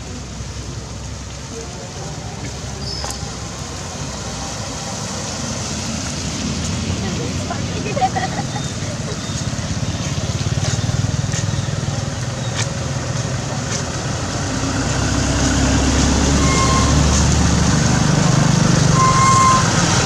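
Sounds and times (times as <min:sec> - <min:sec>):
tyre hiss on wet road: 0:00.0 - 0:11.6
vehicle engine approaching: 0:00.0 - 0:20.0
vehicle engines: 0:00.0 - 0:20.0.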